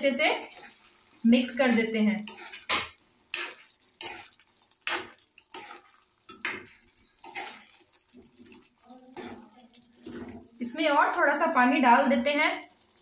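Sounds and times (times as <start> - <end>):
metal spoon scraping pan: 0.0 - 0.9, 2.1 - 10.4.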